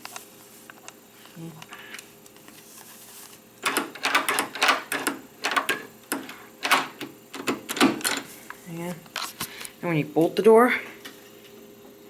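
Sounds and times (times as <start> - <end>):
door handle and latch clacking: 3.6 - 8.2.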